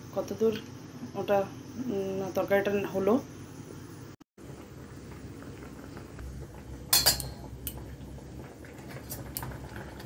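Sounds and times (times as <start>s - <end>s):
metal pan lid clatter: 6.9s - 7.4s.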